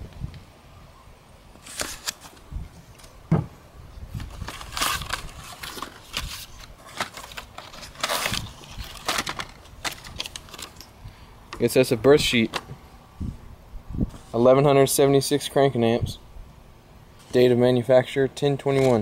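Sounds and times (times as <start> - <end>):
packing paper crinkling: 1.6 - 3.1, 4.2 - 11.8
cardboard box knocks: 3.3 - 3.5.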